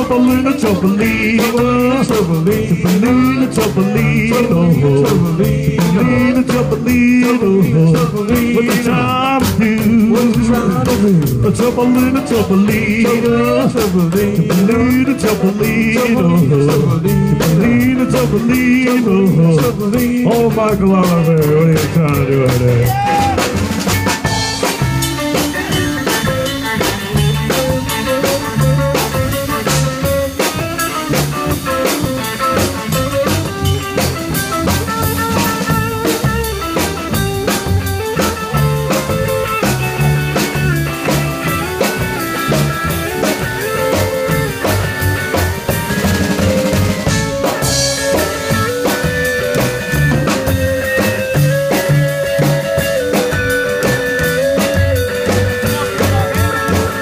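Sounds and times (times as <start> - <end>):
drum kit beat: 0.0 - 57.0
electric guitar lead: 0.0 - 57.0
upright bass: 0.0 - 57.0.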